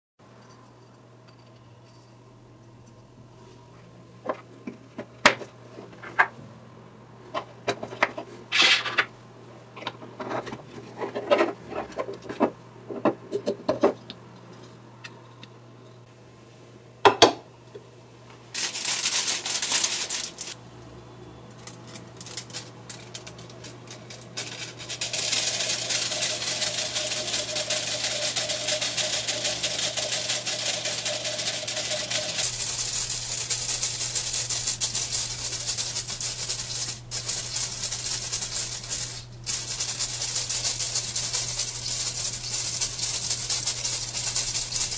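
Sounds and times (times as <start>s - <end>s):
spinning wire rotor scraping rattle: 18.6s - 20.6s, 21.6s - 44.9s.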